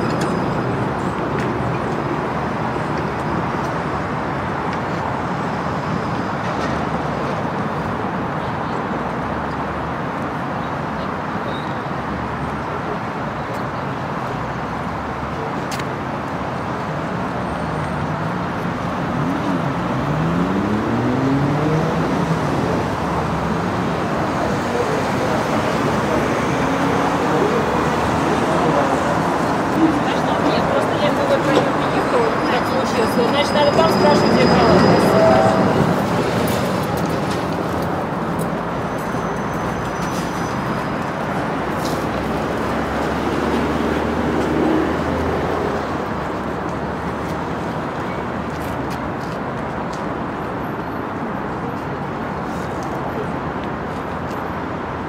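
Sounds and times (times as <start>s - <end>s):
trams passing: 0.0s - 11.1s, 13.7s - 55.0s
street traffic noise: 0.0s - 55.0s
tram electric motors whining: 26.8s - 37.4s.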